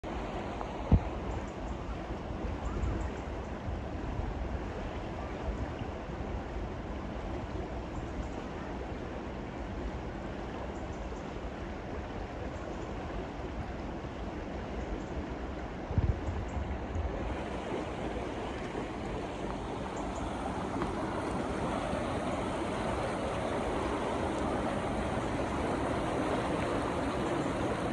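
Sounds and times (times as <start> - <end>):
river water rushing: 16.7 - 27.9.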